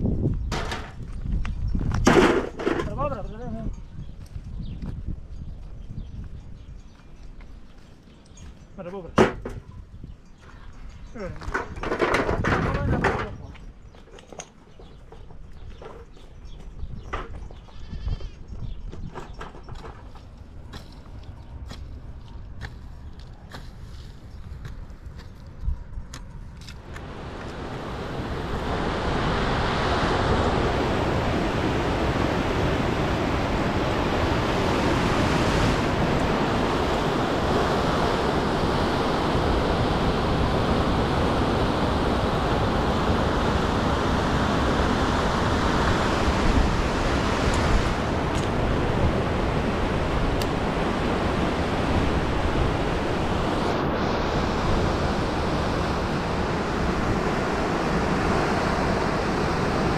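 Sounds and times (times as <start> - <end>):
river rapids rushing: 26.8 - 59.9.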